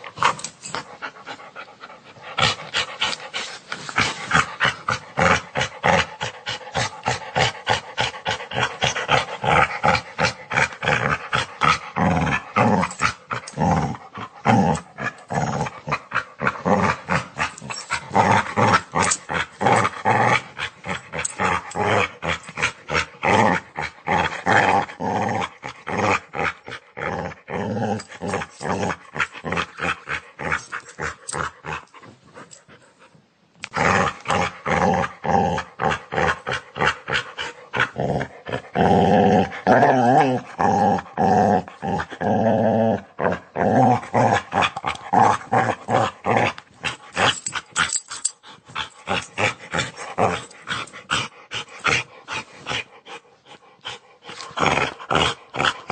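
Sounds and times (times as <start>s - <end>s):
dog snarling and growling: 0.0s - 32.7s, 33.6s - 55.9s.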